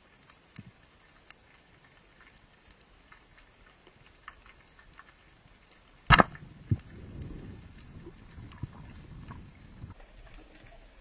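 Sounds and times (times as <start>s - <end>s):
faint reef ticks: 0.0s - 11.0s
low watery rush: 0.0s - 11.0s
speargun firing underwater: 6.1s - 6.4s.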